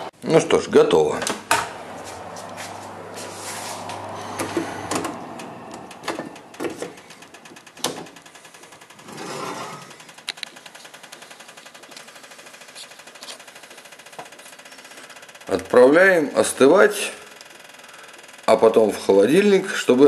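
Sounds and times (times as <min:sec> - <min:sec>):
oven humming: 0:01.0 - 0:18.9
fast even ticking: 0:05.3 - 0:09.1.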